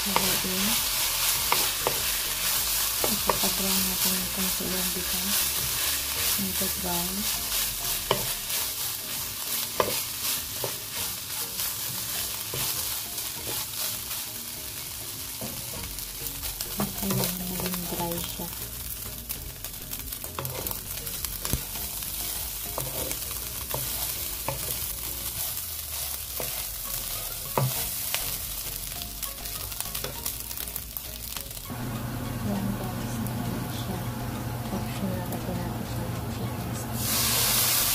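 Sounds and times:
spatula scraping wok: 0.0 - 14.6, 20.1 - 28.9
rice sizzling in oil: 0.0 - 36.2, 36.8 - 37.9.

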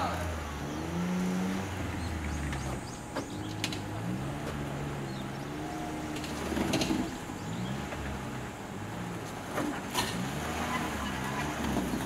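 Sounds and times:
car engine at low revs: 0.0 - 12.0.

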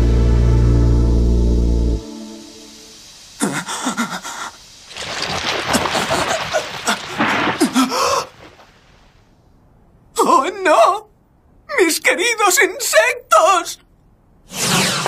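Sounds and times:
insect swarm crackling rustle: 2.1 - 9.3.

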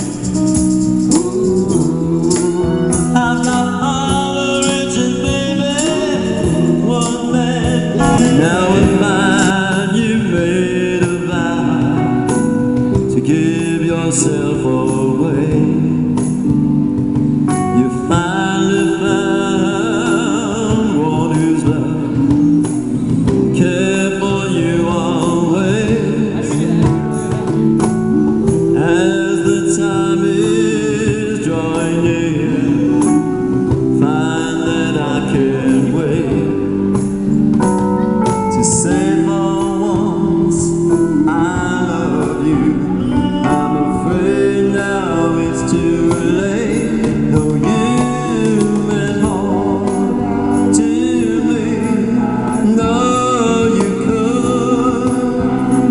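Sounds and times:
cajon: 0.0 - 55.9
electric guitar: 0.0 - 55.9
electric keyboard: 0.0 - 55.9
man singing lead: 0.0 - 55.9
woman singing backing vocals: 7.9 - 10.4.

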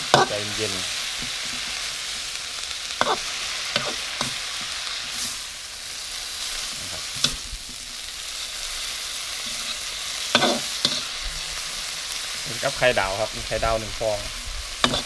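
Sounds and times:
vegetables sizzling in a wok: 0.0 - 15.0
metal spatula scraping a pan: 3.0 - 5.4, 9.3 - 11.2, 14.8 - 15.0.

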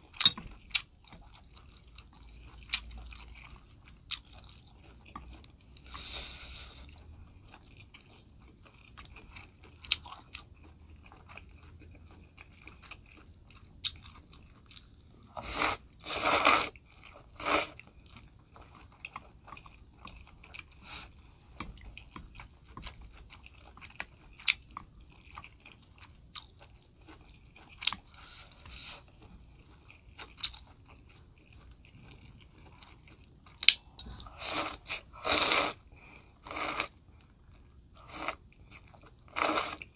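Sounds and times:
slurping noodles: 15.4 - 16.8, 34.2 - 35.8, 36.4 - 36.9, 39.3 - 39.9.

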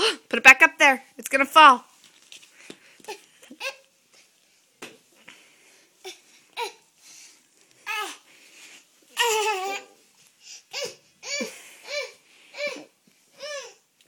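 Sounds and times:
toddler babbling and laughing: 9.2 - 10.0.

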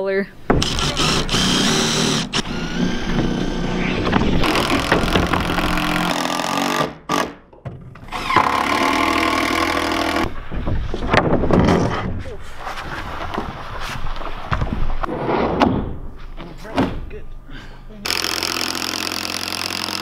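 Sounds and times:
cordless drill driving screws: 0.6 - 7.4, 18.1 - 20.0.

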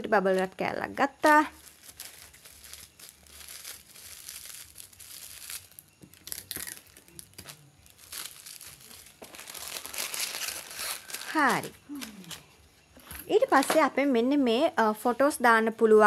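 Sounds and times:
bubble wrap crinkling: 0.2 - 12.5.

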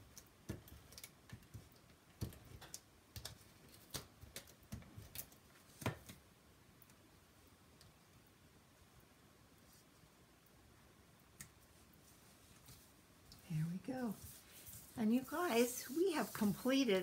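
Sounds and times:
paper rustling: 14.0 - 17.0.

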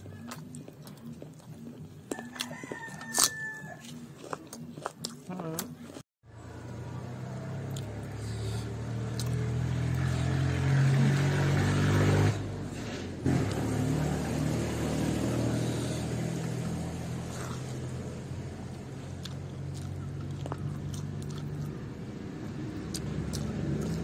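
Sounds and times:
vehicle engine running: 6.2 - 24.0.

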